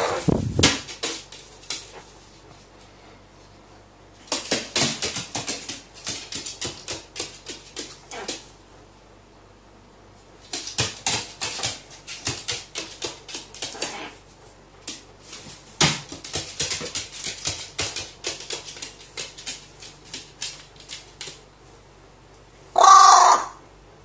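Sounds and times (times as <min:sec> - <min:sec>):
crow soft whining calls: 0:22.8 - 0:23.6.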